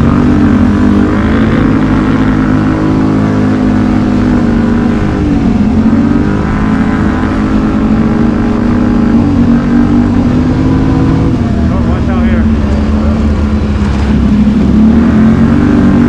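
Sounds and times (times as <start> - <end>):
quad bike engine revving: 0.0 - 16.0.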